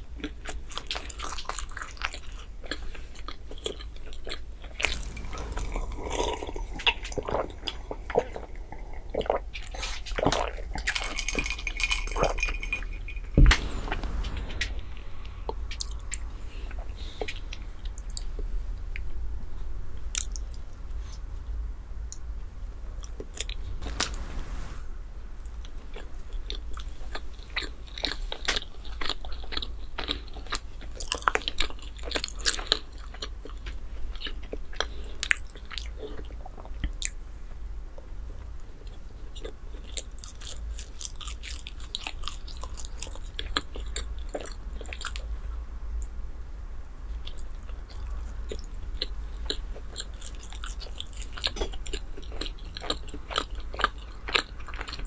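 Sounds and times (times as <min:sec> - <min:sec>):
chewing and biting bread: 0:00.0 - 0:12.4, 0:25.6 - 0:46.1, 0:47.1 - 0:55.0
steady low hum: 0:00.0 - 0:55.0.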